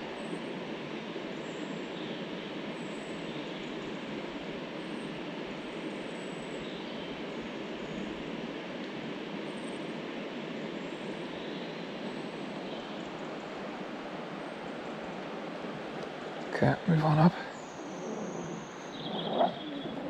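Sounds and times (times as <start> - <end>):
river water rushing: 13.4 - 20.0.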